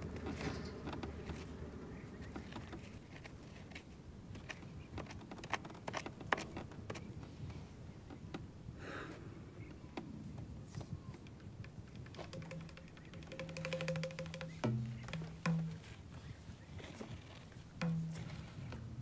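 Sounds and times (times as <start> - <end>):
twig scratching in dry dirt: 2.2 - 7.3.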